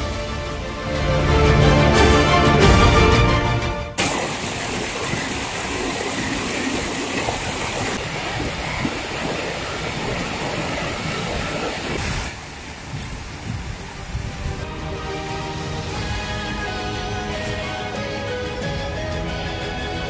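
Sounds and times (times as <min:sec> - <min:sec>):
music: 0:00.0 - 0:04.0, 0:14.0 - 0:20.0
stream rushing over rocks: 0:04.0 - 0:18.7.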